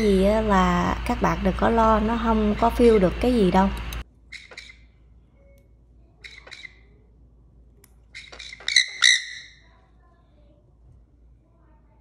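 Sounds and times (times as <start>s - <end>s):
parrot squawking calls: 4.3s - 4.9s, 8.1s - 9.6s.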